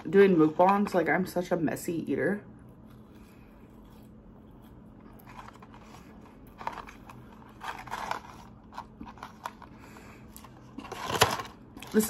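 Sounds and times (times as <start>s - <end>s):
soft chewing: 2.6s - 7.3s
paper carton rustling: 5.2s - 9.7s.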